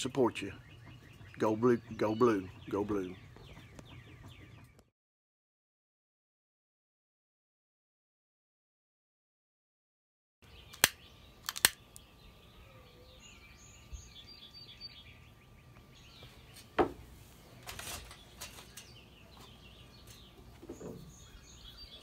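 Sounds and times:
birds chirping: 0.0 - 4.9, 10.4 - 22.0
sharp clicks: 10.7 - 12.1.

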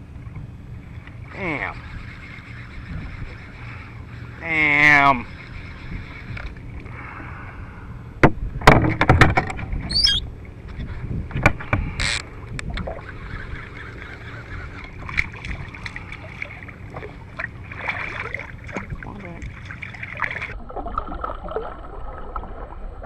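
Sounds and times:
high wavering chirp: 1.3 - 4.4, 9.9 - 10.3.

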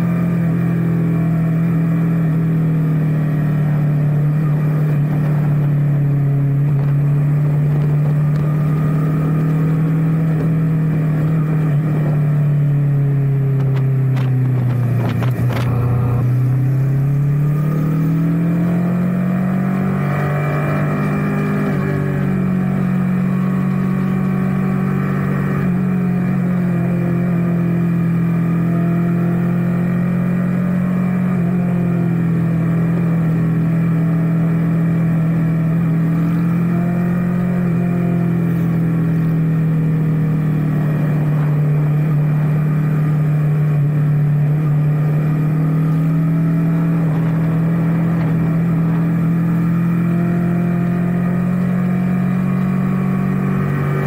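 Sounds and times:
motorcycle engine droning: 0.0 - 54.0
wind on microphone: 4.4 - 12.7, 13.4 - 18.6.

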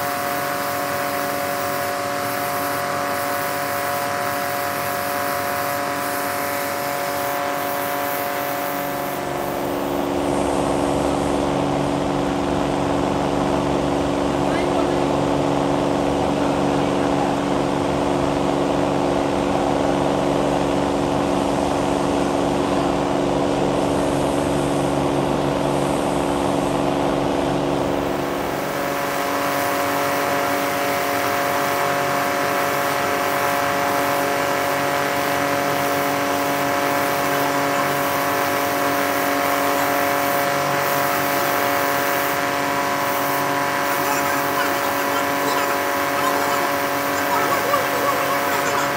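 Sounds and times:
belt sander motor hum: 39.4 - 48.9.

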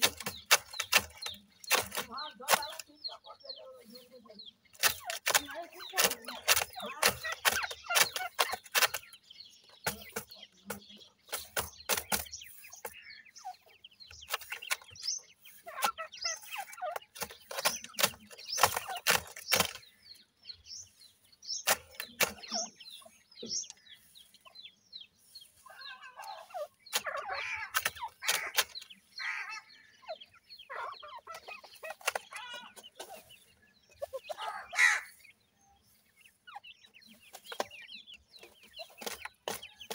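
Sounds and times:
sharp clicks: 0.0 - 2.9, 4.7 - 9.2, 15.8 - 19.9, 21.6 - 22.7, 26.9 - 29.0
chicks clucking: 0.0 - 39.9.

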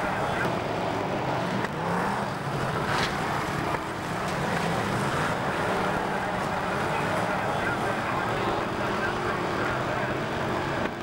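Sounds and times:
race car engines roaring: 0.0 - 11.0.

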